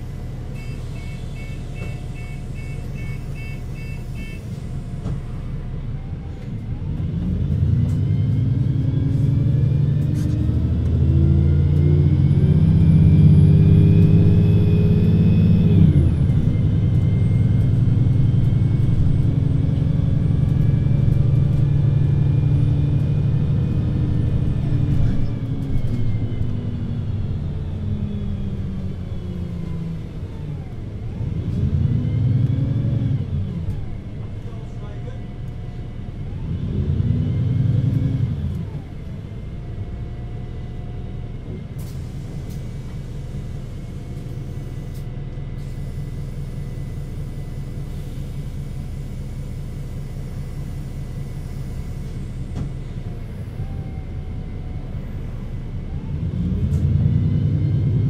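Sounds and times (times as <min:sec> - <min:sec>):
bus diesel engine: 0:00.0 - 0:58.0.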